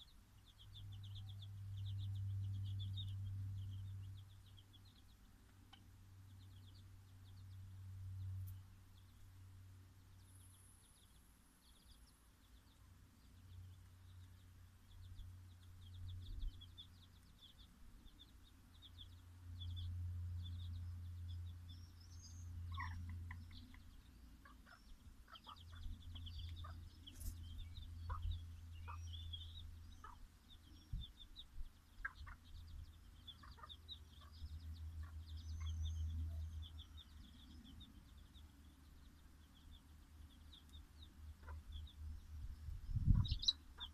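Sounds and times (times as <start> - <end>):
chicks peeping: 0.0 - 9.2, 10.0 - 43.9
hen clucking: 22.7 - 23.6, 28.0 - 29.2, 30.0 - 30.3, 32.0 - 32.5, 33.3 - 34.4, 43.1 - 43.9.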